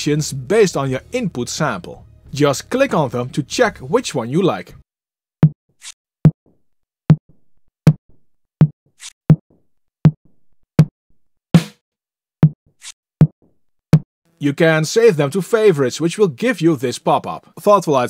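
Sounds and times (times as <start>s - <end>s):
electronic drum thumps with click: 10.1s - 10.9s, 11.6s - 11.8s.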